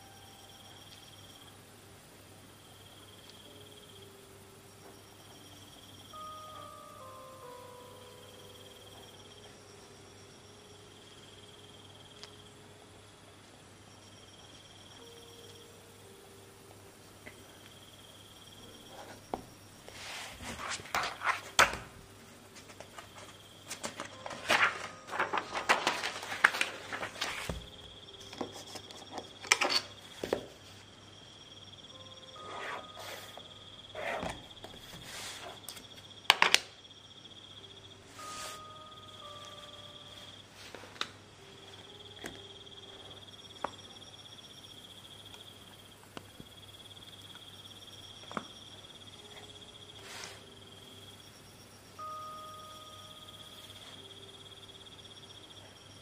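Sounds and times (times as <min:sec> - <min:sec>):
crickets chirping: 0:00.0 - 0:56.0
pen scratching on paper: 0:32.4 - 0:34.4.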